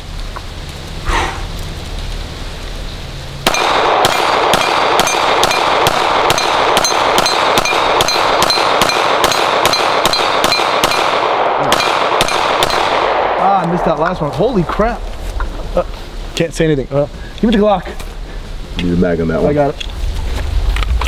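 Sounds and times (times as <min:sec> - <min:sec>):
pistol shots: 0:03.4 - 0:14.0
steel plate targets ringing: 0:03.5 - 0:13.0.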